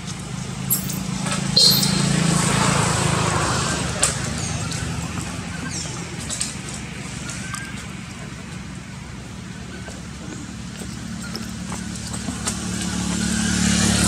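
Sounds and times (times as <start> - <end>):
outdoor background noise: 0.0 - 14.0
short high chirps: 1.6 - 2.2.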